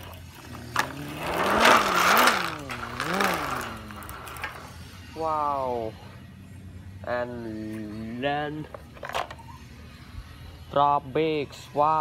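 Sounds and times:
voice making engine noise: 0:00.0 - 0:12.0.

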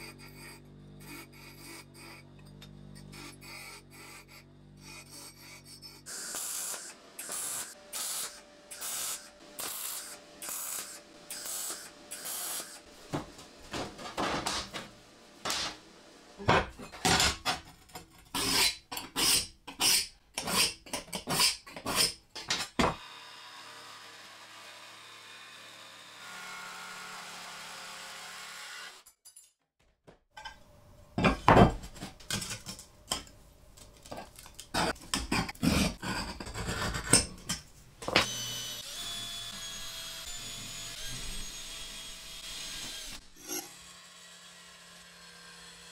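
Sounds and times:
welder crackling: 0:06.1 - 0:12.9
tools scraping on steel: 0:16.8 - 0:22.8.

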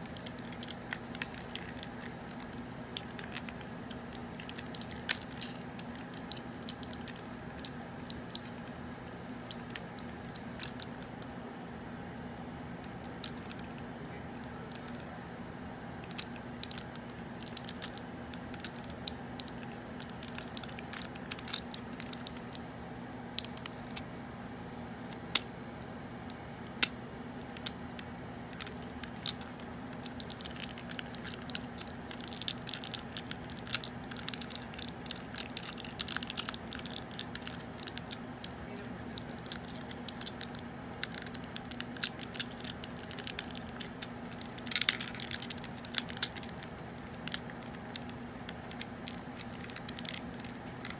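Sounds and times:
plastic toy parts clicking: 0:00.0 - 0:08.7, 0:16.0 - 0:22.6, 0:28.5 - 0:38.2, 0:39.2 - 0:50.9
steady low hum: 0:00.0 - 0:50.9.

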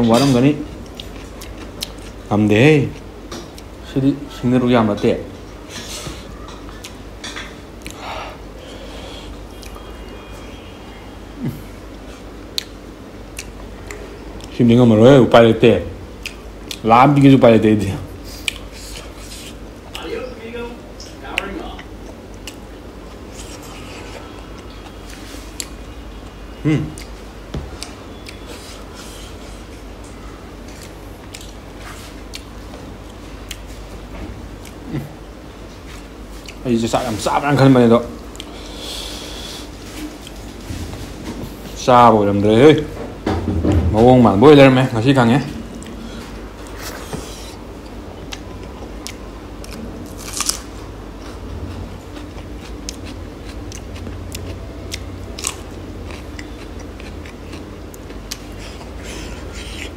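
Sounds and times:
steady low hum: 0:00.0 - 0:59.9
person chewing food: 0:00.8 - 0:02.2, 0:07.8 - 0:09.8, 0:11.5 - 0:14.6, 0:16.2 - 0:16.8, 0:18.2 - 0:20.0, 0:21.4 - 0:33.8, 0:35.9 - 0:36.6, 0:38.3 - 0:40.5, 0:45.7 - 0:59.9
food crunching: 0:30.6 - 0:33.6, 0:45.7 - 0:59.9.

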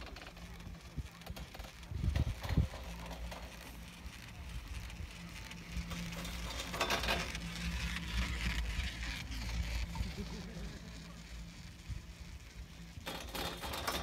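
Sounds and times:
chairlift low hum: 0:00.0 - 0:14.0
wind hiss on microphone: 0:00.8 - 0:02.9.

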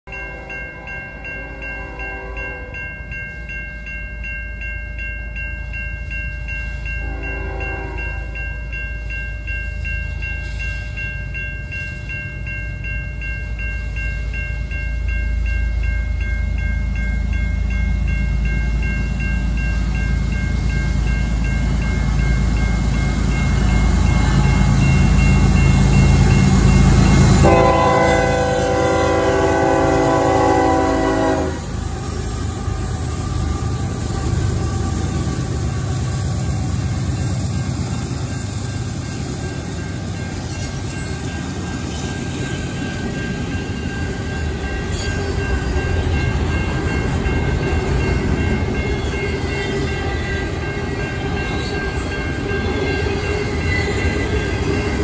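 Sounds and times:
train horn: 0:00.3 - 0:02.8, 0:07.0 - 0:08.4, 0:27.4 - 0:31.8.

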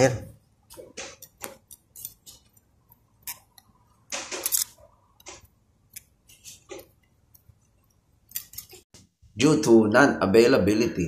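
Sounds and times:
metal blade clicking and scraping: 0:01.2 - 0:08.8.

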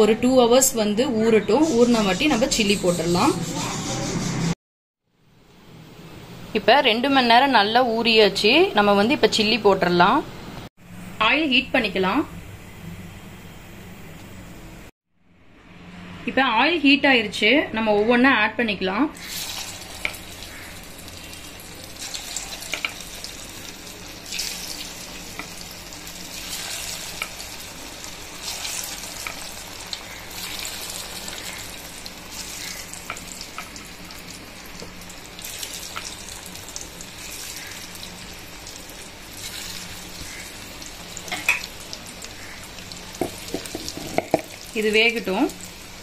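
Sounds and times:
chicken deep-frying in oil: 0:19.2 - 0:46.0.

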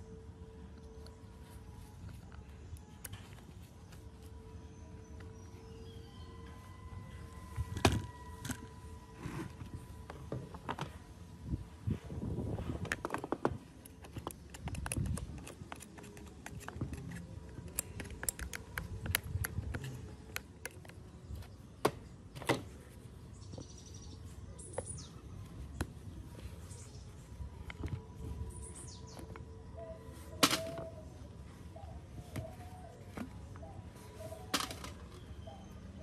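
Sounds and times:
hand tools clicking and scraping: 0:12.8 - 0:21.1.

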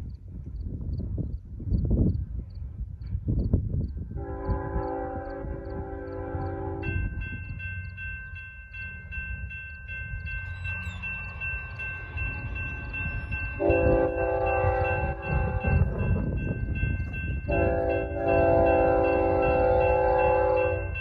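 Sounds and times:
locomotive horn: 0:04.2 - 0:07.1, 0:13.6 - 0:16.2, 0:17.5 - 0:21.0
railroad crossing bell ringing: 0:04.9 - 0:21.0.

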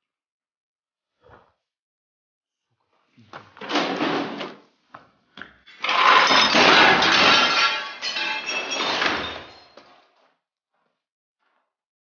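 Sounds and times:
crash and clatter with glassy ringing: 0:05.7 - 0:09.9.

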